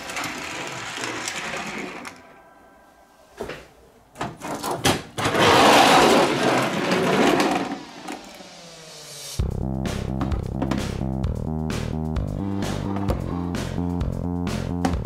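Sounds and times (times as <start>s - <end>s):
toy wheels rolling whir: 0.0s - 2.3s, 5.2s - 8.6s.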